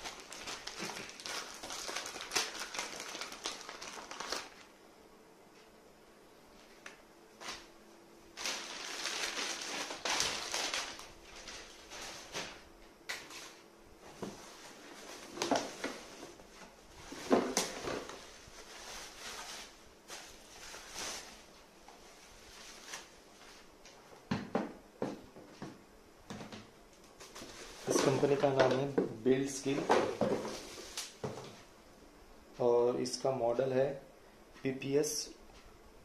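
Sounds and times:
plastic packaging crinkling: 0:00.0 - 0:04.7, 0:08.4 - 0:12.6, 0:17.0 - 0:21.5, 0:27.2 - 0:31.3.

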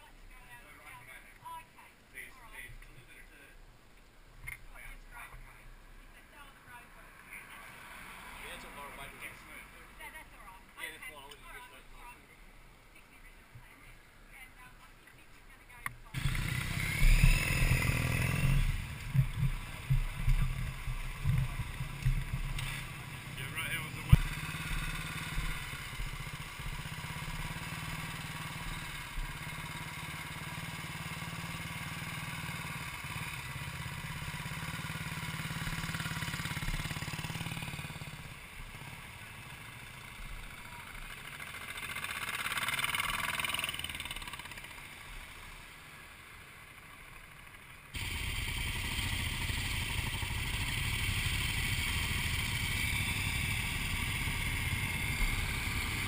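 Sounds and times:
motorcycle engines idling: 0:04.5 - 0:56.0
motorcycle passing by: 0:06.4 - 0:11.8, 0:16.1 - 0:56.0
loud steady engine: 0:16.2 - 0:45.5, 0:47.5 - 0:56.0.

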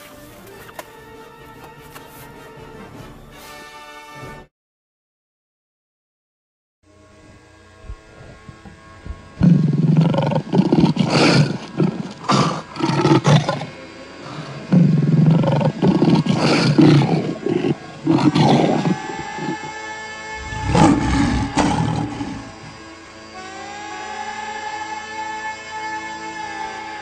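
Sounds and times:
lions roaring: 0:08.0 - 0:19.8, 0:20.4 - 0:22.8.

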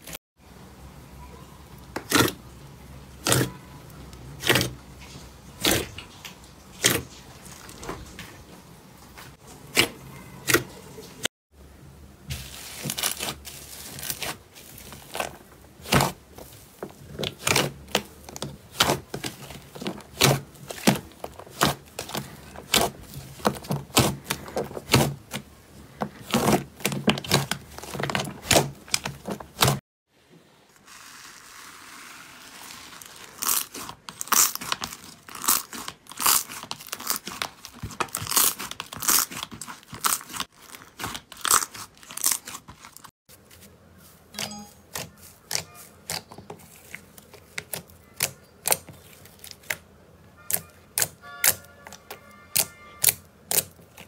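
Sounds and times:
bead-filled slime crackling: 0:12.3 - 0:25.5, 0:30.8 - 0:43.1.

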